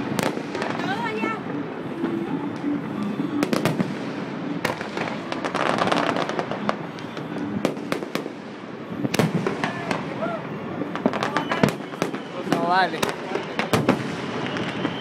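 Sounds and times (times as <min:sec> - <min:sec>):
fireworks bangs and pops: 0:00.0 - 0:15.0
fireworks crackling: 0:00.0 - 0:15.0.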